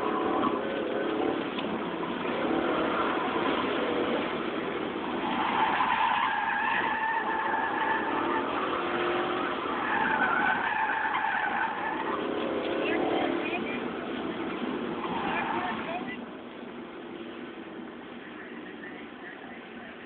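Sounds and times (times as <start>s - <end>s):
car engine running hard: 0.0s - 20.0s
tyres squealing: 5.1s - 13.8s.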